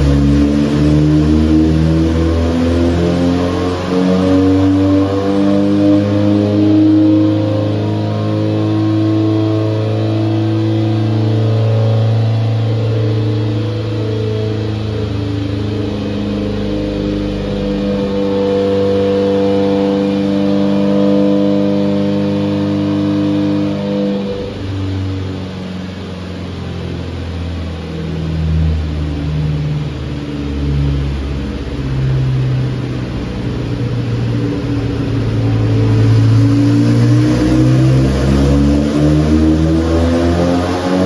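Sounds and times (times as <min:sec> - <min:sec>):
engine running hard under load: 0:00.0 - 0:41.0
low rumble: 0:24.2 - 0:40.2.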